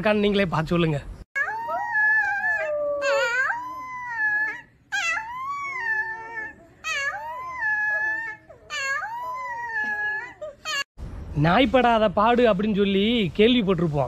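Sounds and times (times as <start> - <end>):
puppy howling: 1.4 - 10.9.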